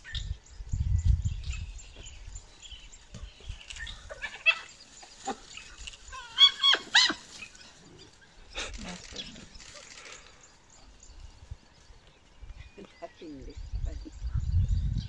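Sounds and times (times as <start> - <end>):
wild dogs yelping and squealing: 3.6 - 10.5.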